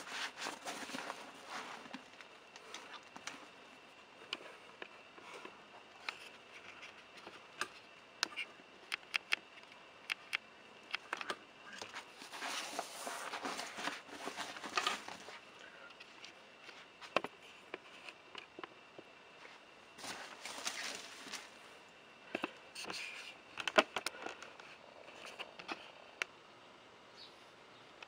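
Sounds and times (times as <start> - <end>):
small clicks and taps: 4.3 - 12.0.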